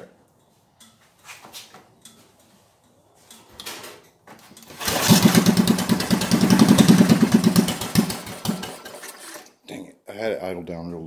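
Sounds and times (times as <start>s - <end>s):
small engine running fast: 4.8s - 9.0s.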